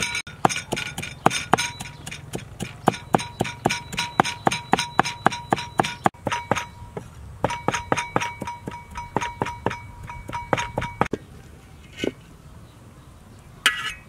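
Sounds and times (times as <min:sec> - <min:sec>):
cleaver chopping on wooden block: 0:00.3 - 0:11.2.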